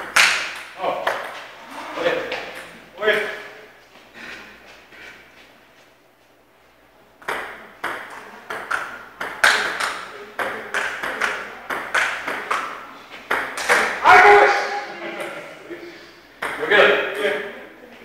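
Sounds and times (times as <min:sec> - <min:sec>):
ping-pong ball hits: 0:00.0 - 0:01.5, 0:07.2 - 0:14.4, 0:16.4 - 0:17.4.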